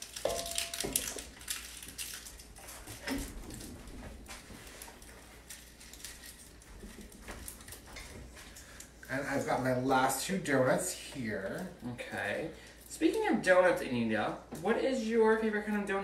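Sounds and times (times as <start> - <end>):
dishes and utensils clinking: 0.0 - 1.4.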